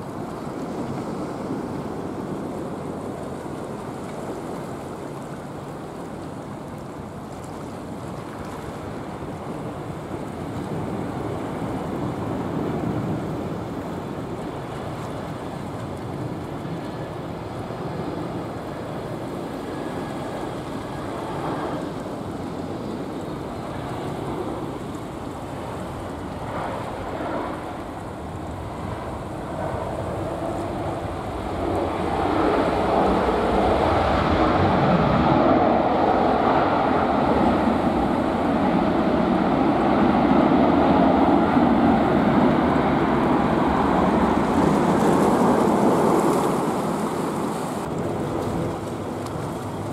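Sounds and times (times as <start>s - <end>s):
wind on microphone: 0.0s - 49.9s
jet aircraft rushing noise: 23.5s - 49.9s.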